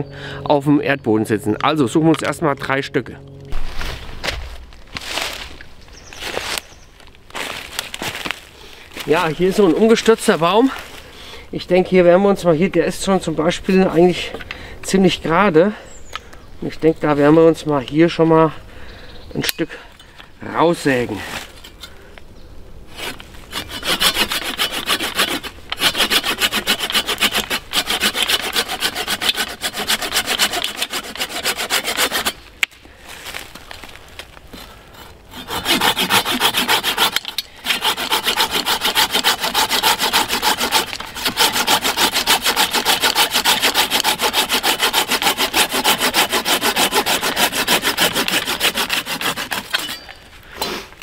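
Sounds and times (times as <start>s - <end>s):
hand saw cutting branch: 22.9s - 32.4s, 35.0s - 50.8s.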